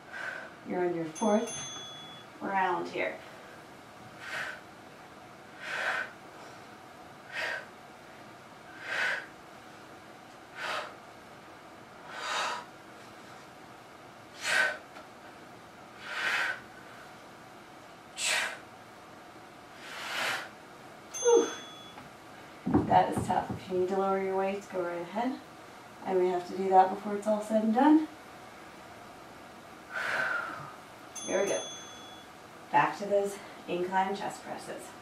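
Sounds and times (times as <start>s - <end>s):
woman exhaling forcefully: 18.2s - 18.6s, 29.9s - 30.8s.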